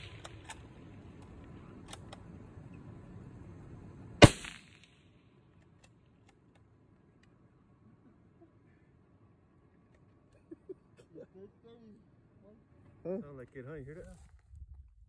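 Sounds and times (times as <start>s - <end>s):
rifle shot: 0.0s - 0.8s, 4.2s - 5.2s.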